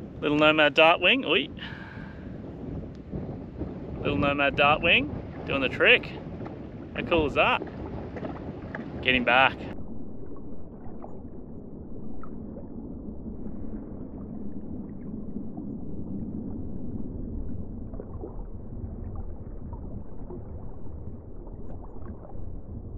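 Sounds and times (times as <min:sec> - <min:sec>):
muffled underwater water rumble: 0:00.0 - 0:22.9
faint ticks and taps: 0:07.6 - 0:09.0.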